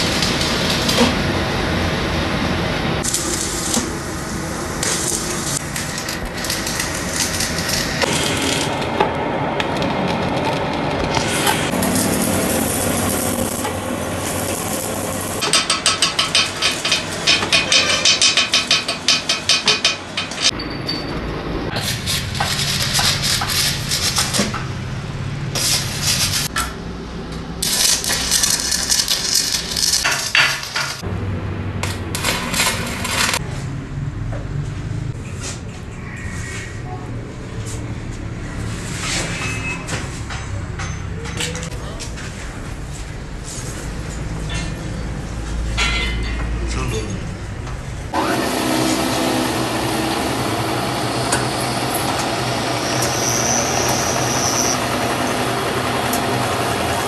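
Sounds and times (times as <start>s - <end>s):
arc welding crackling and hissing: 0.0s - 1.7s, 3.0s - 9.0s, 9.7s - 20.5s, 21.8s - 26.5s, 27.4s - 31.0s, 48.7s - 57.0s.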